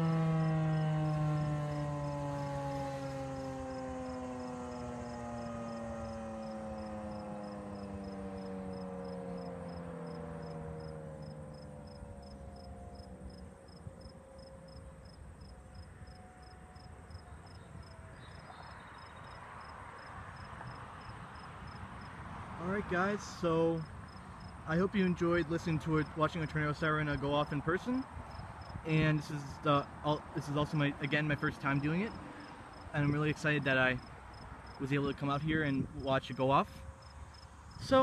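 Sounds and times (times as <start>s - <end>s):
siren winding down: 0.0s - 19.4s.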